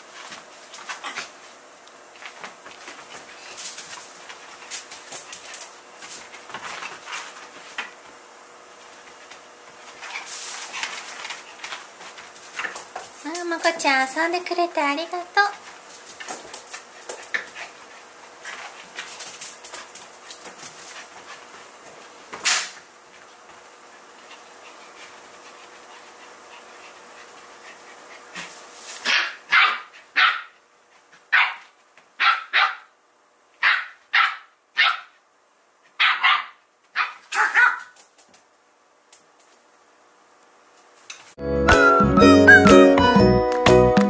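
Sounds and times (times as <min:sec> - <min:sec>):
dogs scuffling: 0:00.0 - 0:14.0, 0:15.5 - 0:29.6
dog barking: 0:29.1 - 0:30.6, 0:31.3 - 0:31.6, 0:32.2 - 0:32.9, 0:33.6 - 0:35.2, 0:36.0 - 0:37.9.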